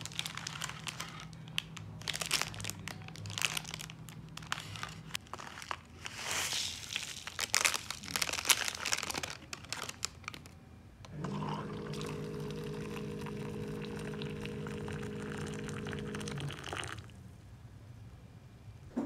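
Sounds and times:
foil packet crinkling: 0.0 - 10.6
hot water pouring into cup: 11.1 - 17.1
hot-water pot pump humming: 11.1 - 17.6.

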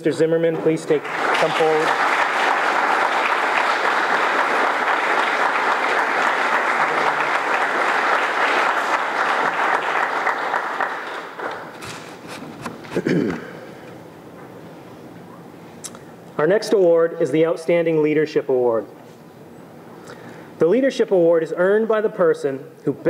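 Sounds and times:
audience applauding: 0.5 - 12.0.

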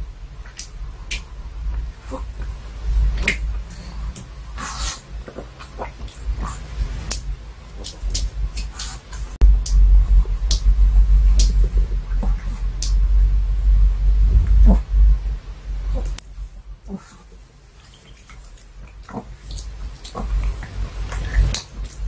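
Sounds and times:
low rumbling bumps: 0.0 - 22.0
dog sniffing: 3.2 - 7.1
dog smacking lips: 16.9 - 22.0.

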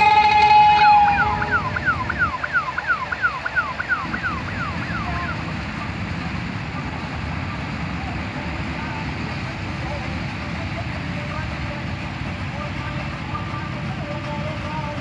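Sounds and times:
loud sustained high tone: 0.0 - 6.0
distant combine harvester rumble: 0.0 - 15.0.

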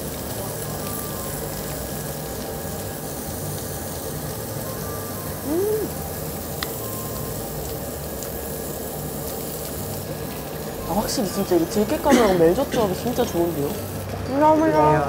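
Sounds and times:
meat sizzling on a grill: 0.0 - 15.0
person humming mmm: 4.7 - 6.1.

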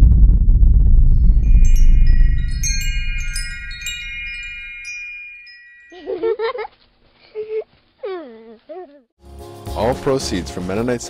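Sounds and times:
low rumble: 0.0 - 4.8
wind chimes tinkling: 1.4 - 6.7.

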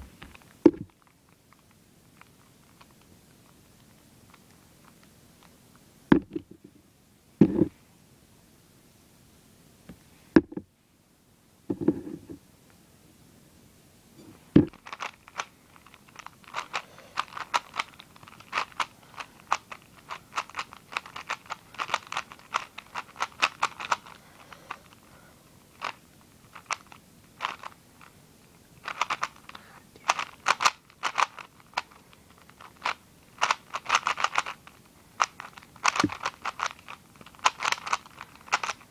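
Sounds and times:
puzzle cube clicking as turned: 14.7 - 25.0, 25.7 - 27.8, 28.8 - 38.9.

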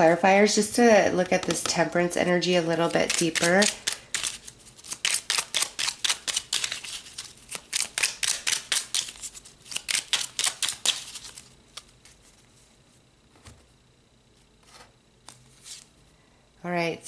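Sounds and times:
cards being shuffled: 2.7 - 12.4, 14.6 - 15.9.

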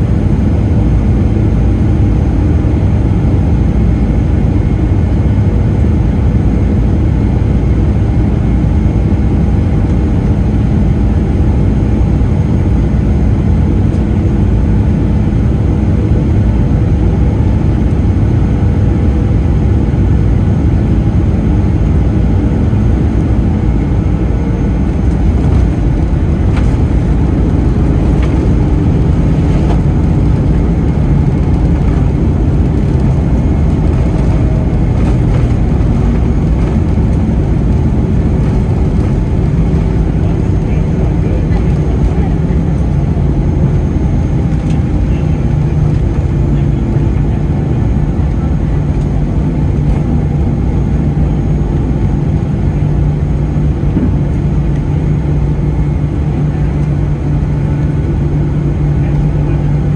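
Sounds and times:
jet engines and airflow rushing: 0.0 - 59.9
runway rollout rumble: 0.0 - 59.9
thrust reversers roaring: 24.7 - 46.0.

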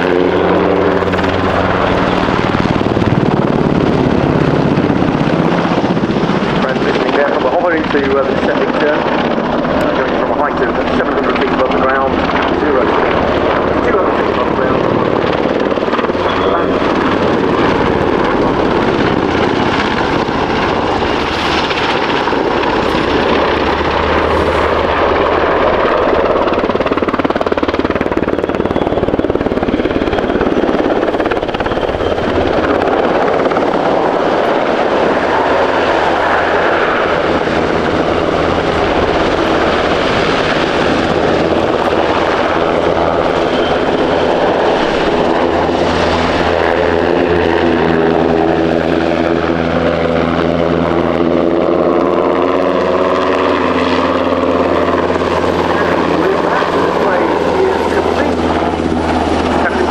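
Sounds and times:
helicopter rotor and turbine noise: 0.0 - 59.9
humming tone: 16.0 - 26.7, 27.8 - 34.7.

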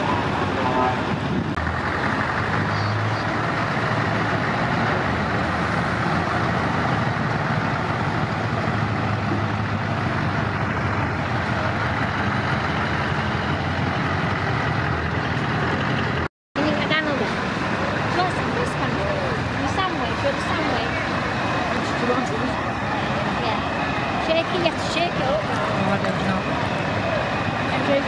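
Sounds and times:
trucks driving past: 0.0 - 28.0.

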